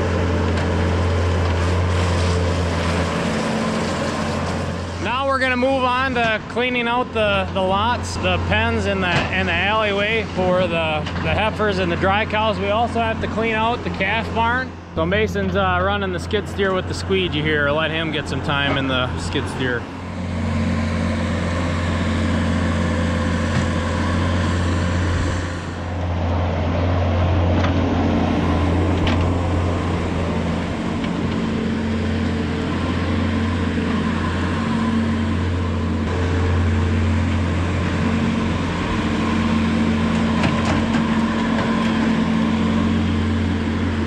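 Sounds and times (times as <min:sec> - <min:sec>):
diesel engine running: 0:00.0 - 0:44.0.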